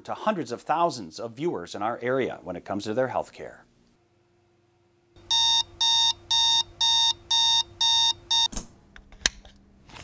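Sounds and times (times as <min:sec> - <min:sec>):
alarm clock electronic beeps: 0:05.2 - 0:08.5.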